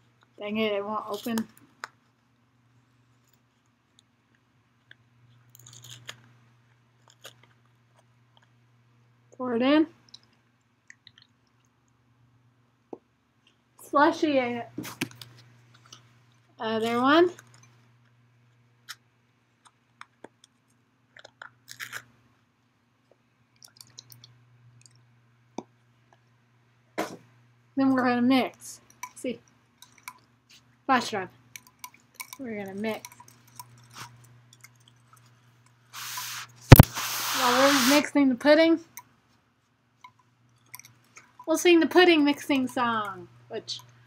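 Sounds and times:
box and plastic pouch crinkling: 5.4 - 6.3
sharp click: 36.7 - 37.0.

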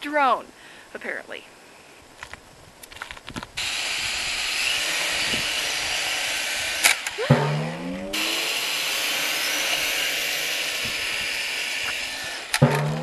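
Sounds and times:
toy drone rotors whirring: 3.6 - 7.3, 8.1 - 12.6
short falling whine: 3.6 - 13.0
sharp knock: 7.3 - 8.0.

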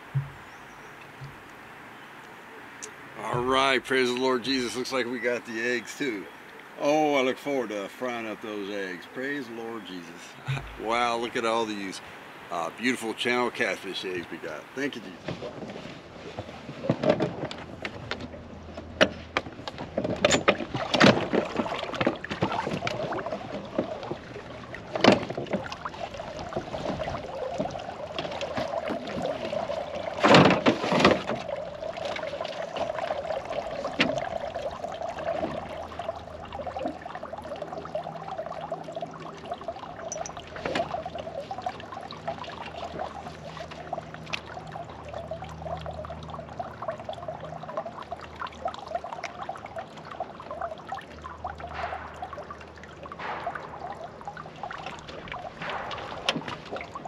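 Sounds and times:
paddle knocking against boat hull: 0.0 - 0.5, 1.1 - 1.4.

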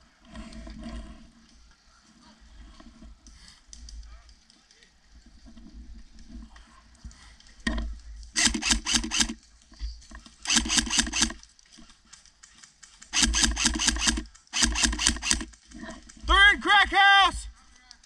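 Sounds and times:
airsoft rifle rapid shots: 8.4 - 9.4, 10.4 - 11.4, 13.0 - 15.6.

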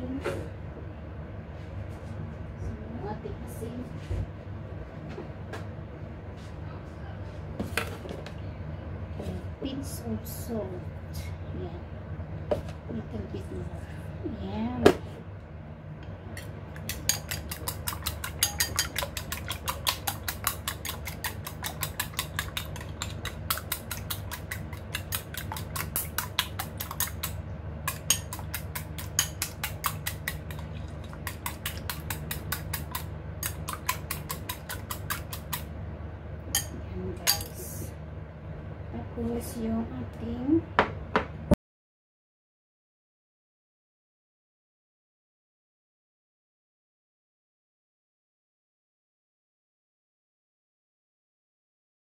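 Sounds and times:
chopsticks clicking on bowl: 16.8 - 35.7.

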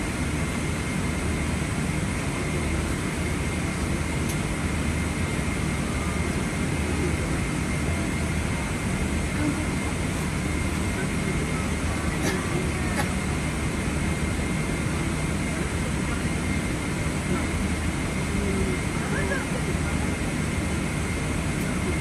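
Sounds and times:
faint high whine: 0.0 - 12.8
aircraft cabin rumble and hiss: 0.0 - 22.0.

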